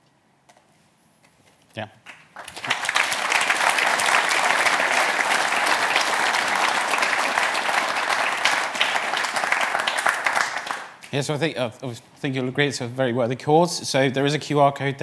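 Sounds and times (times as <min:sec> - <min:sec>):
audience clapping: 0:02.0 - 0:11.2.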